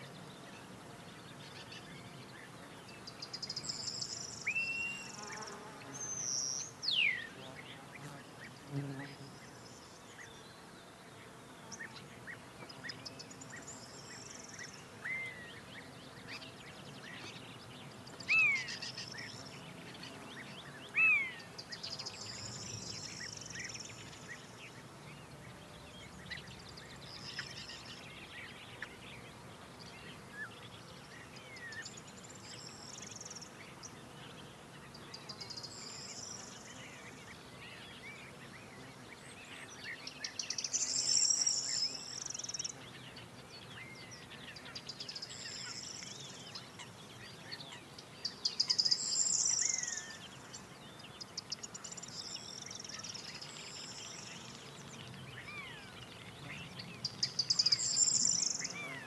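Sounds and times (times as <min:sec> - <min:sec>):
faint bird chirps: 0:34.8 - 0:59.0.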